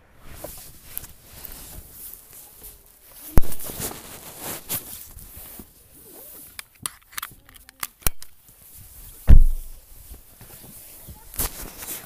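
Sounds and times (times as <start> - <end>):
rustling and handling noise: 0.1 - 12.0
loud thump: 9.3 - 9.8
small knocks: 9.3 - 9.8.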